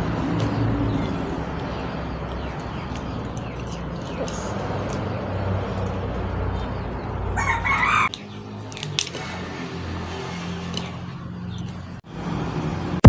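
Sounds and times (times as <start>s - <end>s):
rooster crowing: 7.3s - 8.2s.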